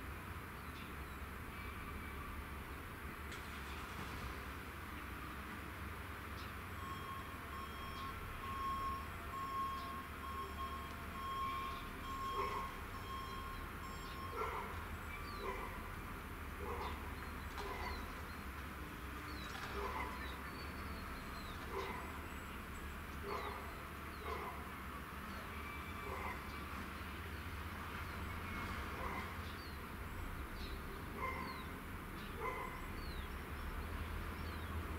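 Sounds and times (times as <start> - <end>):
dog barking: 12.3 - 12.8, 14.3 - 14.8, 15.4 - 15.8, 16.6 - 17.0, 17.6 - 18.1, 19.7 - 20.3, 21.7 - 22.1, 23.2 - 24.7, 26.0 - 26.4, 29.0 - 29.4, 31.2 - 31.6, 32.4 - 32.8.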